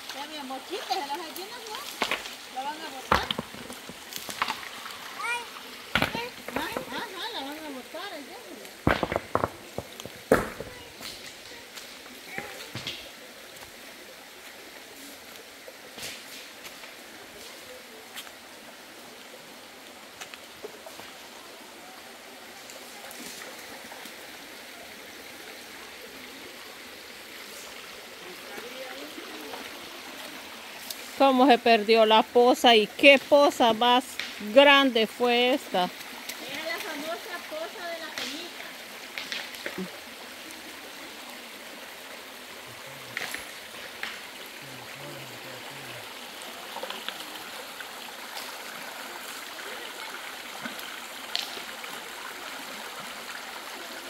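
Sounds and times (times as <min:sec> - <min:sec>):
creek water rushing: 0:00.0 - 0:54.0
footsteps on river stones: 0:01.4 - 0:05.2, 0:05.9 - 0:07.6, 0:08.8 - 0:13.8.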